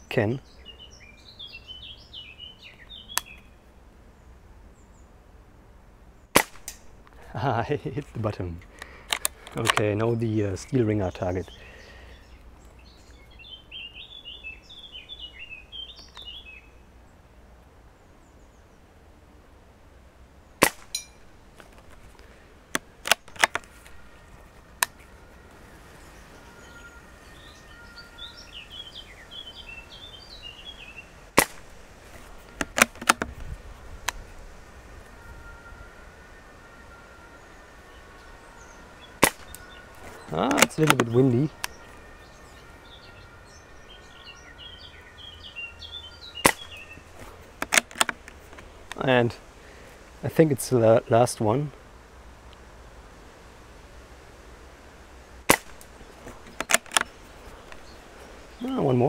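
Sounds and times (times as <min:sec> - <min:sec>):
birds chirping: 0:00.0 - 0:59.0
air rifle shot: 0:06.4 - 0:06.8, 0:20.6 - 0:21.0, 0:31.4 - 0:31.7, 0:39.2 - 0:39.6, 0:46.4 - 0:46.8, 0:55.5 - 0:55.8
rifle bolt clicks: 0:08.8 - 0:09.8, 0:23.0 - 0:23.7, 0:47.6 - 0:48.3, 0:56.5 - 0:57.1
pellet ringing on steel target: 0:20.6 - 0:21.2.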